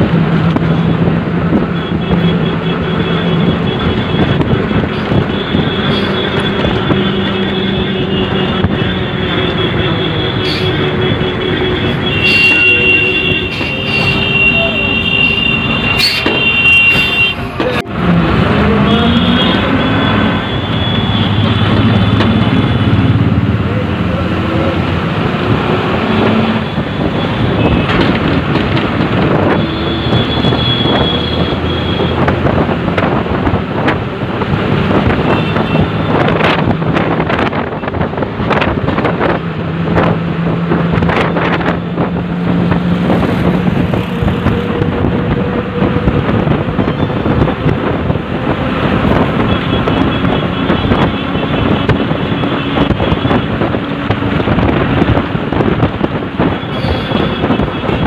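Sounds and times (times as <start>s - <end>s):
traffic: 0.0s - 58.0s
wind on microphone: 24.8s - 58.0s.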